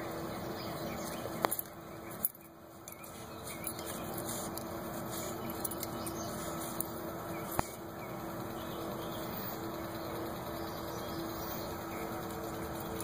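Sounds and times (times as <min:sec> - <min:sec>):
dog snuffling through dirt: 0:03.0 - 0:07.7.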